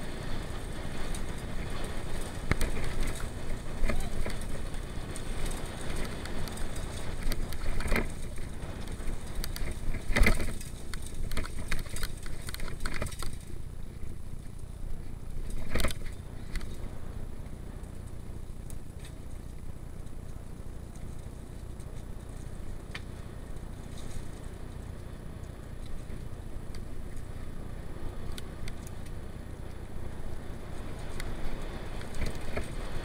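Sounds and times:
bike rattles and knocks: 0:00.0 - 0:16.9, 0:28.2 - 0:33.0
bike tyres rumbling on dirt: 0:00.0 - 0:33.0.

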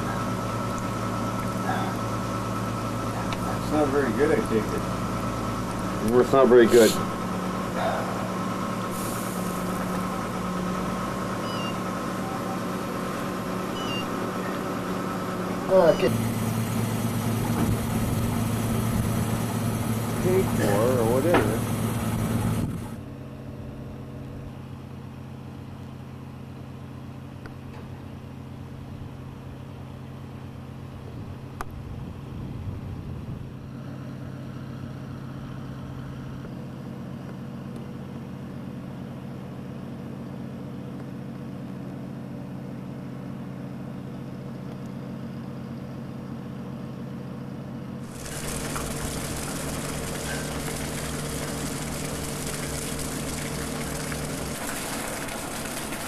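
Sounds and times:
boat engine droning: 0:00.0 - 0:40.7, 0:46.0 - 0:56.0
strong hiss: 0:08.8 - 0:10.0.

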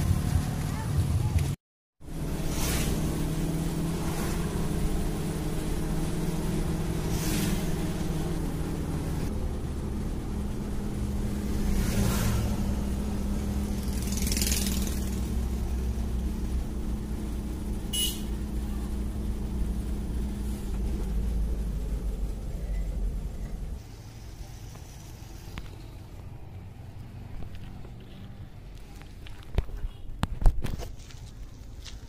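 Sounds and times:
car engine and road noise: 0:00.0 - 0:32.0.

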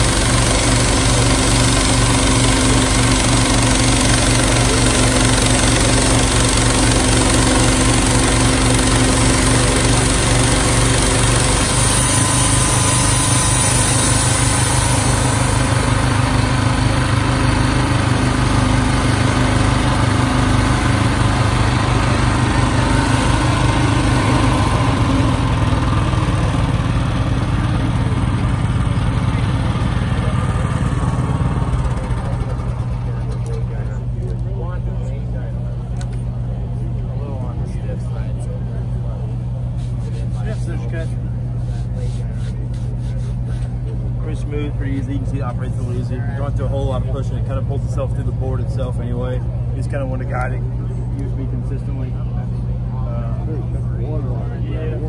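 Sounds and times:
band blade sawing log: 0:00.0 - 0:26.1, 0:39.7 - 0:43.8
sawmill engine running: 0:00.0 - 0:55.0.

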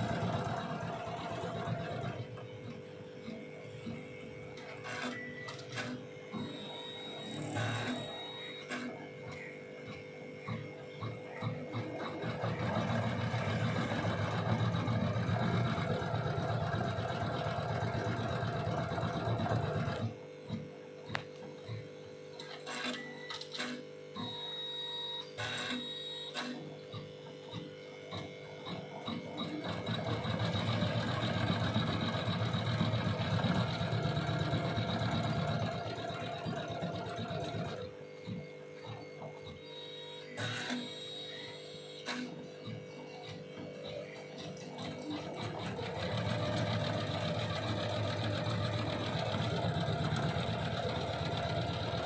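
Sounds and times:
embroidery machine stitching: 0:00.0 - 0:02.8, 0:11.3 - 0:20.2, 0:29.2 - 0:37.9, 0:44.5 - 0:52.0
short machine tones: 0:04.6 - 0:09.6, 0:22.4 - 0:27.0, 0:28.2 - 0:42.0.

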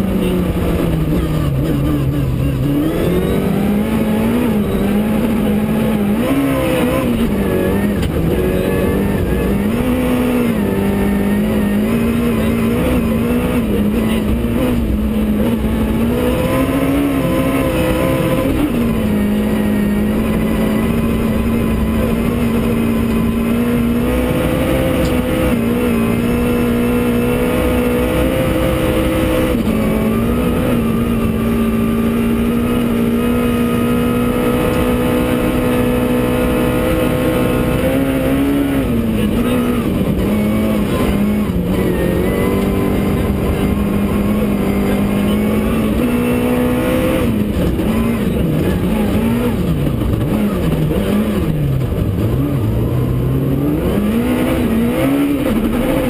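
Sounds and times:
rally car engine at high revs: 0:00.0 - 0:56.0.

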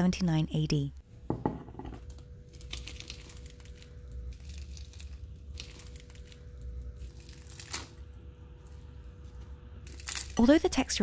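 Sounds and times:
crisp pastry crunching and tearing: 0:02.0 - 0:10.5.

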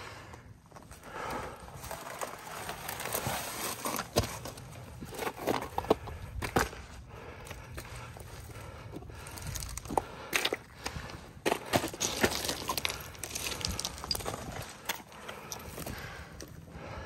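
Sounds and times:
boots crunching on loose rock: 0:09.0 - 0:16.4
small stones clicking: 0:11.8 - 0:15.9.

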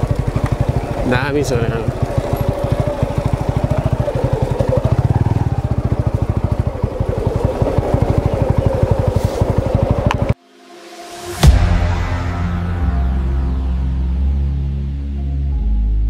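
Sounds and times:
motorcycle engine chugging: 0:00.0 - 0:10.4.

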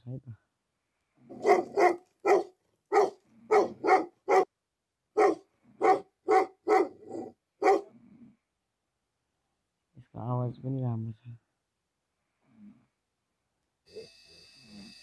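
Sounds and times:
dog barking: 0:01.3 - 0:04.5, 0:05.2 - 0:07.9.

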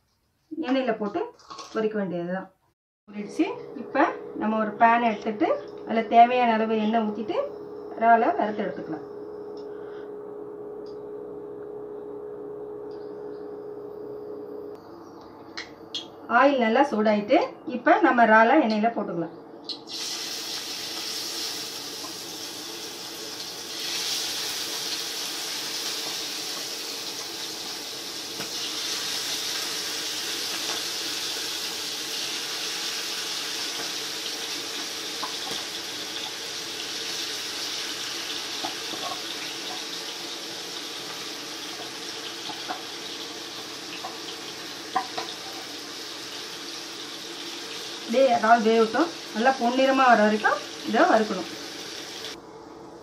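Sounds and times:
steady low hum: 0:03.1 - 0:19.9
prawns sizzling in hot oil: 0:19.8 - 0:52.4.

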